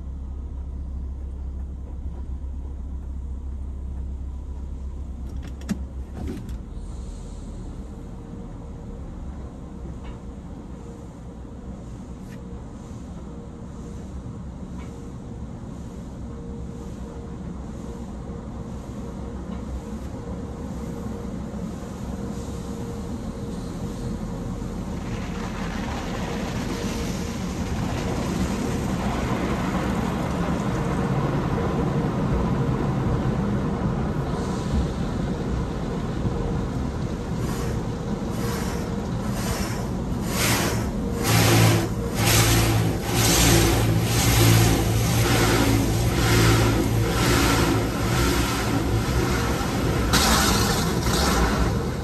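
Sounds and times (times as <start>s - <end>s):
steady low hum: 0.0s - 25.1s, 26.5s - 52.0s
water spray drenching car: 23.5s - 31.9s, 37.1s - 52.0s.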